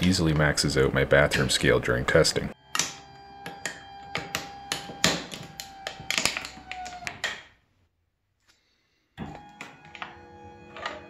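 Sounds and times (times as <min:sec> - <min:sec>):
actuator motor whine: 0:02.6 - 0:07.2.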